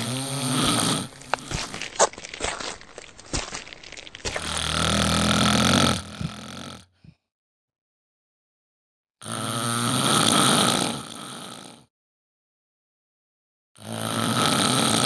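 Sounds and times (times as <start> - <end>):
deep rough growl: 0.0 - 6.9.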